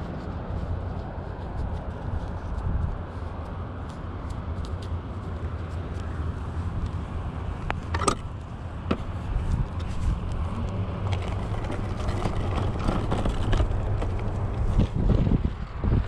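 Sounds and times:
tyres rumbling on dirt: 0:04.7 - 0:16.0
scooter frame rattling: 0:07.6 - 0:15.6.

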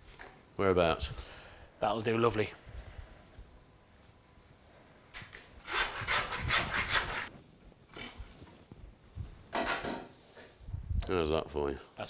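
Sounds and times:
knife scraping: 0:05.7 - 0:07.3.

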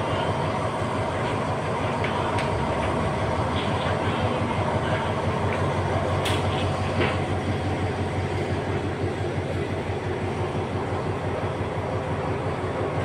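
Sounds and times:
train carriages rolling on track: 0:00.0 - 0:13.0.

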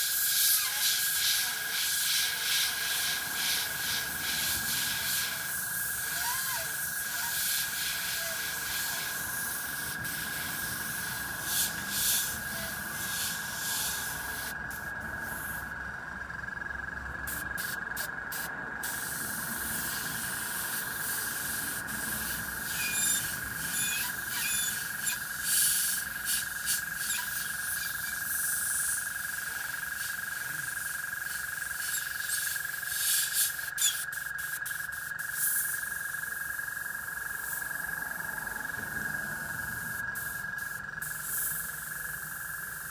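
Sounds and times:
airbrush hissing sprays: 0:00.0 - 0:15.7, 0:17.3 - 0:29.2, 0:39.8 - 0:41.9.

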